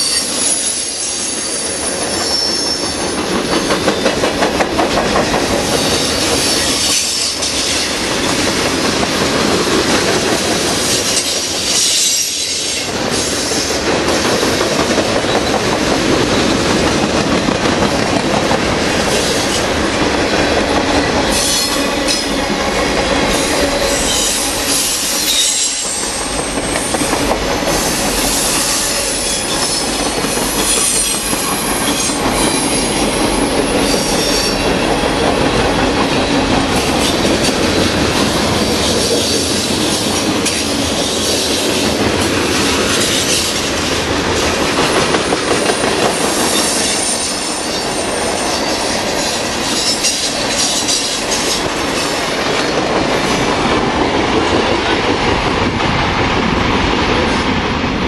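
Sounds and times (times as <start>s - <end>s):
wheel squeal: 0.0s - 3.1s
steel wheels rushing on rail: 0.0s - 58.0s.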